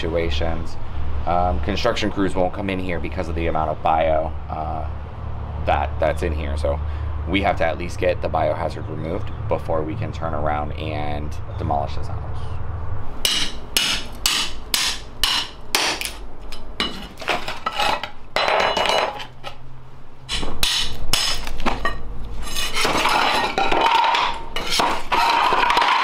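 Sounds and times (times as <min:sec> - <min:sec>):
broken tile pieces clattering: 0:16.8 - 0:19.4, 0:22.8 - 0:26.0.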